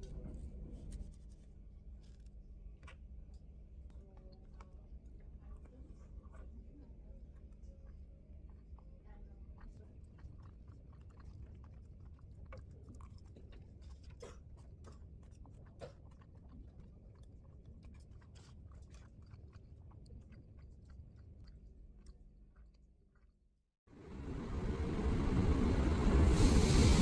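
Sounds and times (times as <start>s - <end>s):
steady low hum: 24.0s - 27.0s.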